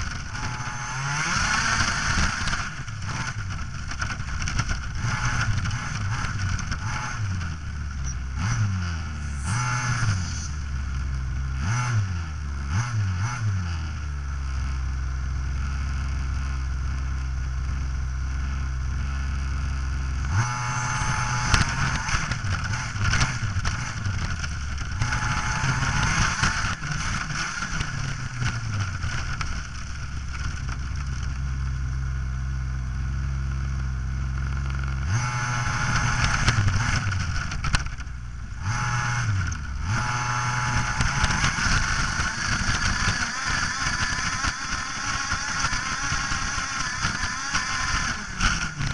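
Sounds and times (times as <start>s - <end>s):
model car motor humming: 38.8s - 48.9s.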